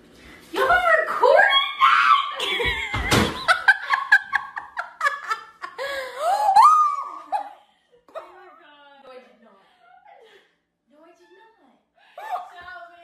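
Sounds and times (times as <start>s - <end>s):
people laughing: 2.4s - 8.3s
high-pitched wavering cry: 6.2s - 7.4s.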